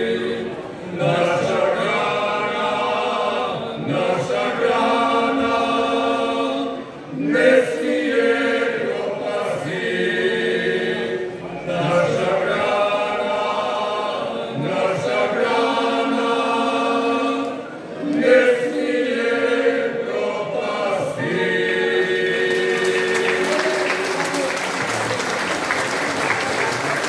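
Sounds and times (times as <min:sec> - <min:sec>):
men singing in harmony: 0:00.0 - 0:23.6
audience applause: 0:22.2 - 0:27.0.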